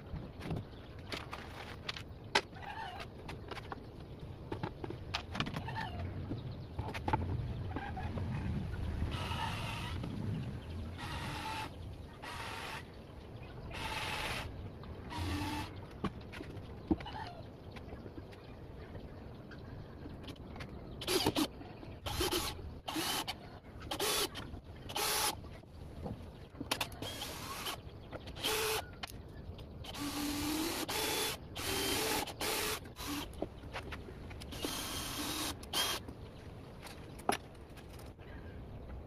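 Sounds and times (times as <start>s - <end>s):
cordless drill driving screws: 29.9s - 33.3s, 34.5s - 36.0s.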